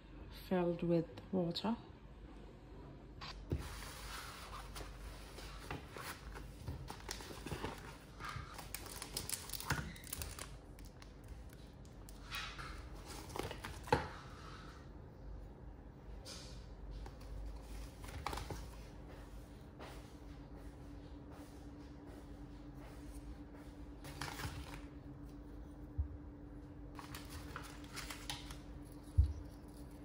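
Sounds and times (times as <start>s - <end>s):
plastic packaging crinkling: 6.8s - 12.3s.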